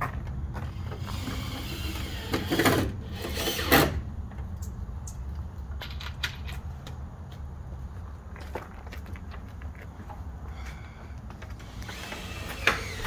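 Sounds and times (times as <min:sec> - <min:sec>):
footsteps on gravel: 0:00.0 - 0:01.3, 0:06.5 - 0:12.6.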